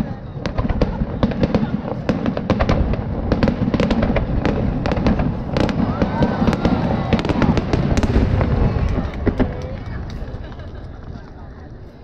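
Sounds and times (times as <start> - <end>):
fireworks bangs and crackles: 0.0 - 12.0
continuous low rumble: 4.2 - 12.0.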